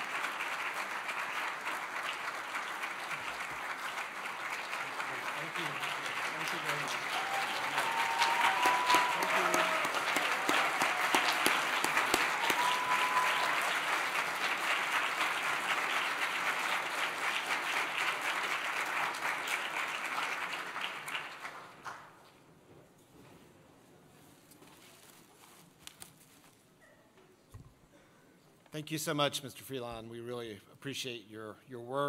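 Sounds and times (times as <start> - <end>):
audience applauding: 0.0 - 22.1
people cheering: 4.7 - 16.2.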